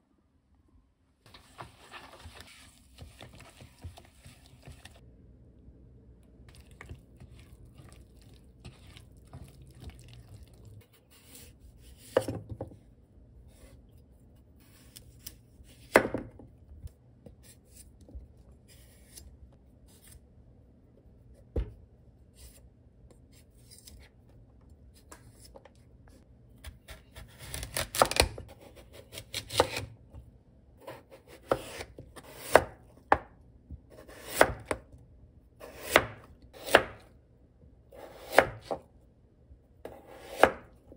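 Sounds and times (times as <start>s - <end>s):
knife chopping on cutting board: 12.0s - 12.8s, 14.9s - 16.4s, 30.8s - 33.3s, 33.9s - 34.8s, 35.6s - 37.0s, 38.0s - 38.8s, 39.9s - 40.7s.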